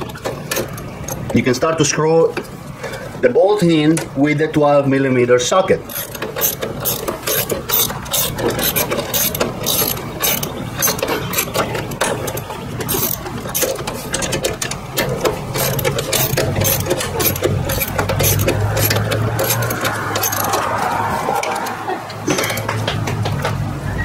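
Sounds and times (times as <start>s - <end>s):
socket ratchet clicking: 5.9s - 12.0s, 12.8s - 20.8s.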